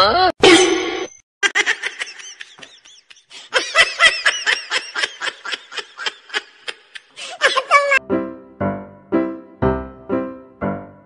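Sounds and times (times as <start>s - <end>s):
high-pitched giggling laughter: 1.4s - 8.0s.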